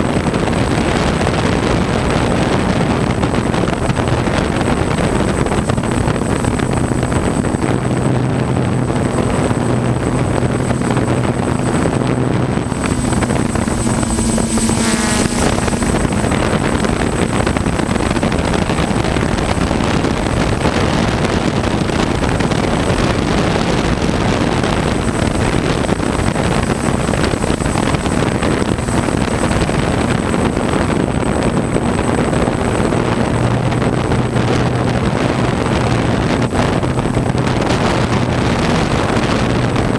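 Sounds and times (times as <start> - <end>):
wind noise: 0.0 - 39.9
drone motors humming: 3.4 - 20.4.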